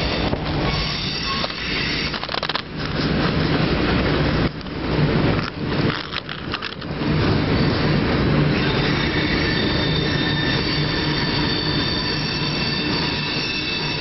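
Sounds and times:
train cars rumbling on bridge: 0.0s - 14.0s
wheels squealing: 8.6s - 14.0s.

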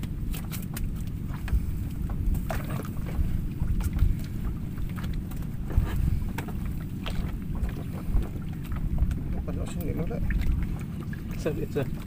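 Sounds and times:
fishing net clicks and rustles: 0.0s - 1.6s
wind rumbling on microphone: 0.0s - 12.0s.

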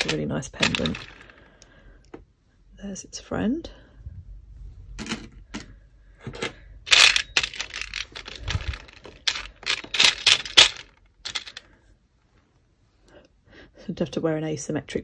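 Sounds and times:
jewellery clinking in plastic tub: 0.0s - 1.4s, 5.0s - 11.7s.

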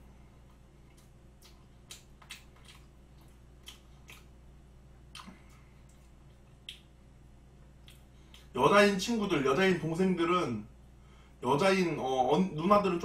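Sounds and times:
low steady hum: 0.0s - 13.0s
person chewing with mouth clicks: 0.4s - 4.4s, 5.0s - 7.0s, 7.6s - 8.5s.

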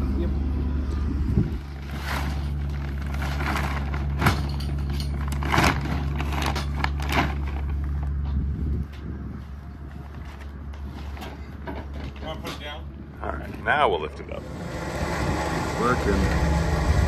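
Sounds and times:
engine running steadily: 0.0s - 12.2s, 12.8s - 17.0s
plastic bag crinkling: 1.8s - 4.2s.

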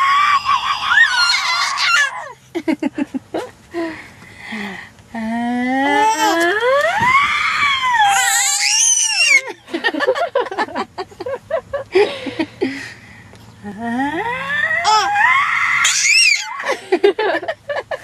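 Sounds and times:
infant screaming: 0.0s - 2.3s, 6.0s - 9.5s, 14.7s - 16.7s
infant choppy vocal sounds: 5.8s - 6.6s, 14.8s - 15.2s.

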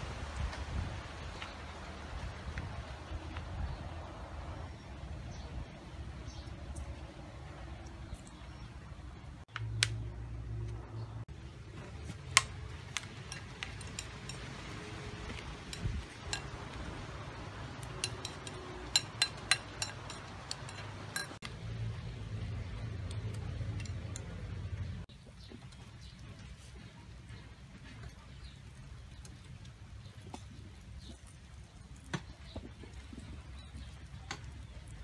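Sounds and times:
metal spoon clinking on ceramic bowl: 13.3s - 14.5s, 15.7s - 16.6s, 17.8s - 21.4s.

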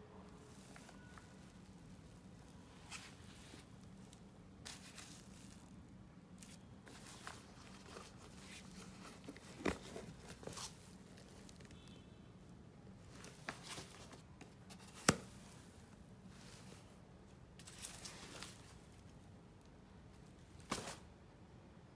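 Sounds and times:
wrapping rustling: 0.3s - 11.9s, 17.6s - 19.3s.

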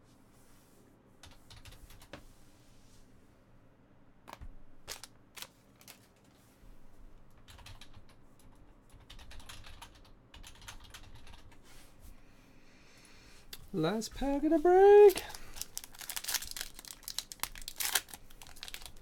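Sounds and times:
faint keyboard typing: 1.2s - 2.2s, 7.3s - 11.7s.

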